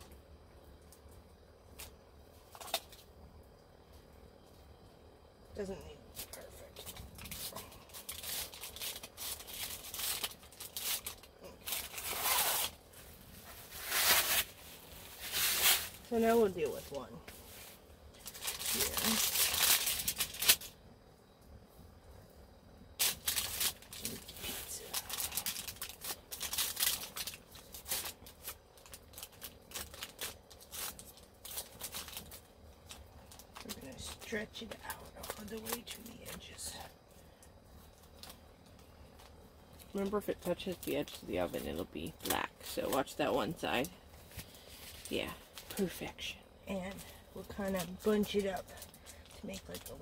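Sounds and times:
aluminium foil crinkling: 0.8 - 3.2, 5.6 - 20.9, 23.0 - 50.0
plastic package crinkling: 1.7 - 3.1, 6.8 - 17.0, 18.1 - 20.8, 23.0 - 36.5, 37.8 - 46.0.

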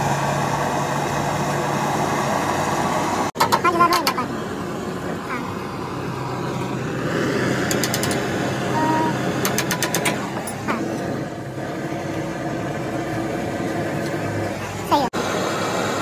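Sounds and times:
rapid metallic clicks: 7.6 - 8.4, 9.4 - 10.6.

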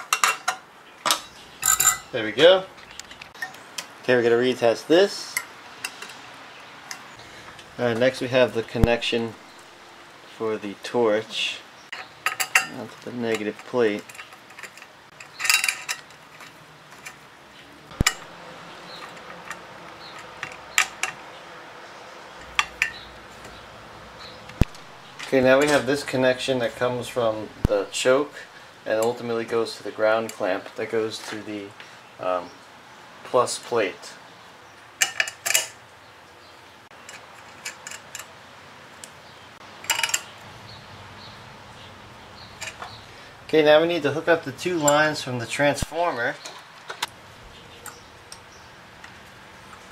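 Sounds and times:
small metal parts clinking: 0.0 - 2.2, 11.9 - 17.3, 17.9 - 18.3, 18.9 - 21.2, 22.4 - 23.0, 35.0 - 35.8, 36.9 - 38.4, 39.8 - 40.4, 42.6 - 43.0.

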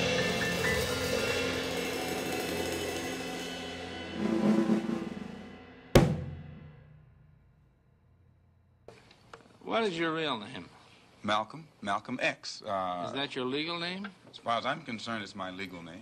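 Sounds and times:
sharp final drum hit: 0.0 - 7.7.

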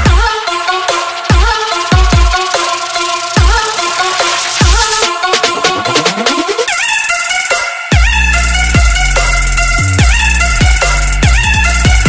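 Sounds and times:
deep kick drum: 0.0 - 0.3, 1.3 - 2.4, 8.0 - 9.0, 9.9 - 12.0.

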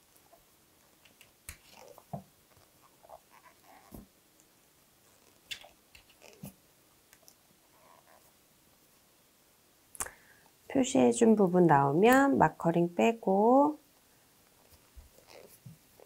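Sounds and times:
crochet hook rubbing yarn: 15.1 - 16.0.

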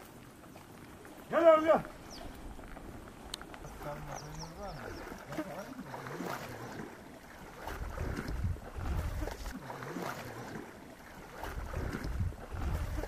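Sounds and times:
water lapping and sloshing: 0.0 - 13.0
wind buffeting the microphone: 7.6 - 9.5, 11.4 - 13.0.

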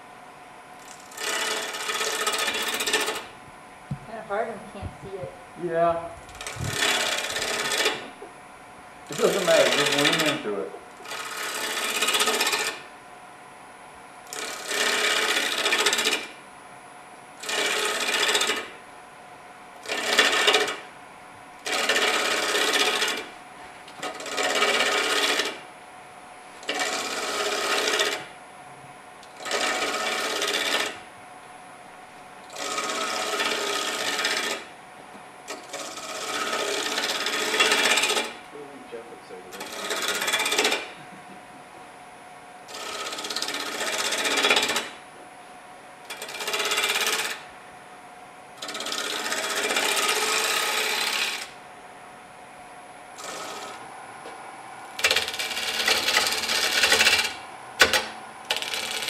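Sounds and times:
bowl gouge cutting wood on lathe: 0.8 - 3.3, 6.4 - 8.1, 9.1 - 12.8, 14.3 - 16.3, 17.4 - 18.7, 19.8 - 20.8, 21.6 - 23.3, 23.9 - 25.6, 26.6 - 28.3, 29.2 - 31.0, 32.5 - 34.7, 35.5 - 38.4, 39.5 - 41.0, 42.7 - 45.0, 46.1 - 47.5, 48.6 - 51.6, 53.2 - 53.9, 55.0 - 59.0.

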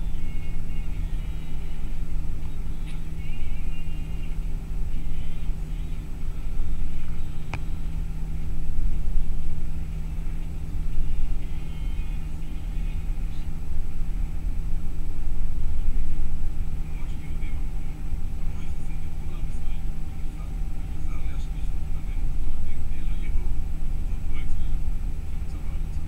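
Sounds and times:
bus engine and tyres droning: 0.0 - 26.0.

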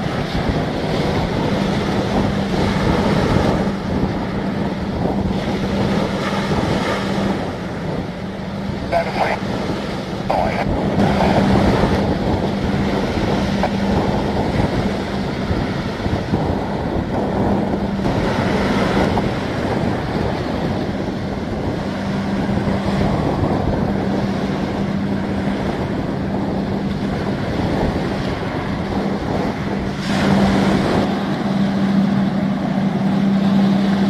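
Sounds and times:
ship diesel engine drone: 0.0 - 34.0
wind buffeting microphone: 0.0 - 34.0.

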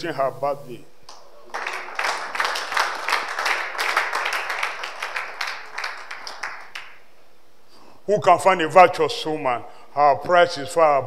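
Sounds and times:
audience applauding: 1.1 - 7.1.

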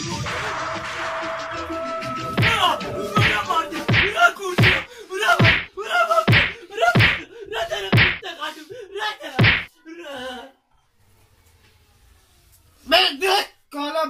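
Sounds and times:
people yelling: 0.2 - 8.3
broom smacking: 8.0 - 8.2, 9.4 - 9.7.

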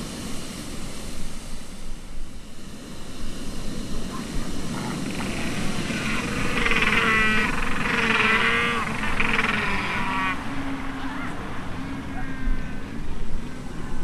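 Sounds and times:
penguins trumpeting calls: 4.1 - 14.0.

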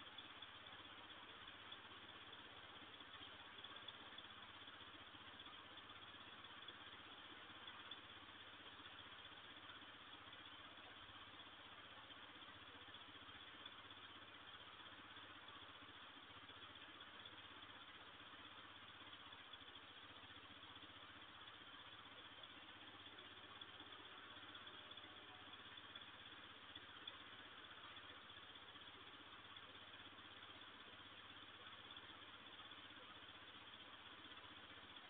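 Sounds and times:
microphone hiss: 0.0 - 15.6
faint low hum: 0.0 - 35.0.

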